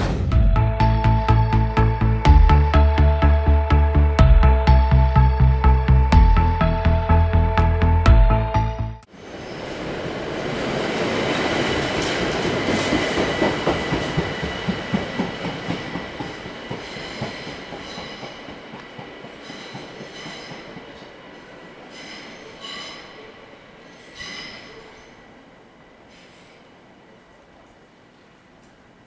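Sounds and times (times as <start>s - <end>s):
intro music: 0.0s - 9.1s
train wheels rumbling and clicking: 11.0s - 23.0s.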